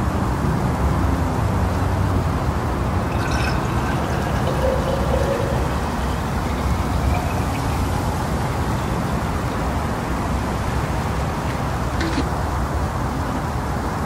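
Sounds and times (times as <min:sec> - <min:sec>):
liquid pouring into glass jar: 0:02.9 - 0:11.2
glass clink: 0:03.1 - 0:09.5.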